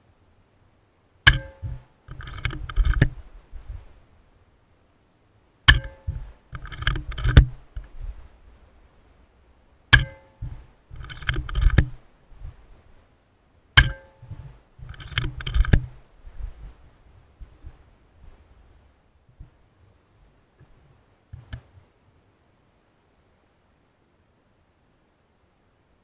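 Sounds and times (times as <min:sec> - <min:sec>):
metallic bolt clicks: 0:01.3 - 0:03.2, 0:05.7 - 0:07.9, 0:09.9 - 0:12.0, 0:13.8 - 0:16.0
air rifle shots: 0:09.9 - 0:12.0, 0:13.8 - 0:16.0.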